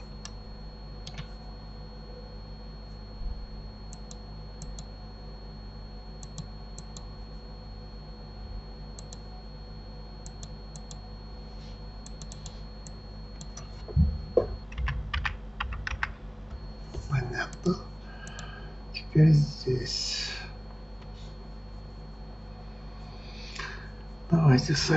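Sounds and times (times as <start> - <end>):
electrical hum with high whine: 0.0 - 24.9
computer mouse clicks: 1.0 - 1.4, 3.9 - 4.9, 6.2 - 7.1, 9.0 - 9.3, 10.2 - 11.0, 12.0 - 13.7, 18.2 - 18.5
keyboard clatter: 14.4 - 16.2.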